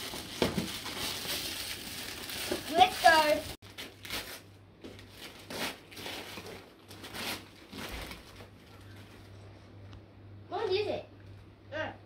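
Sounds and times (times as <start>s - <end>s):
wrapping paper tearing and crumpling: 0.0s - 9.0s.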